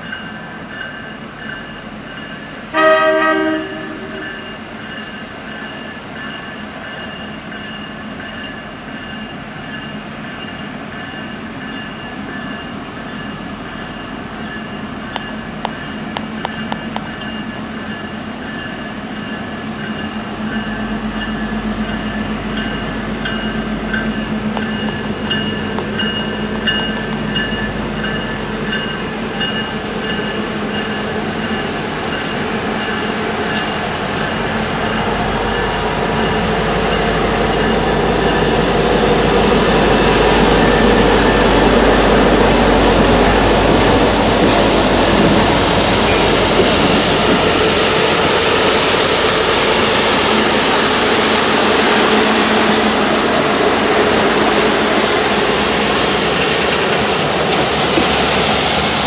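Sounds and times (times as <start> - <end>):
diesel locomotive passing: 0.0 - 59.0
water jets hissing: 38.6 - 59.0.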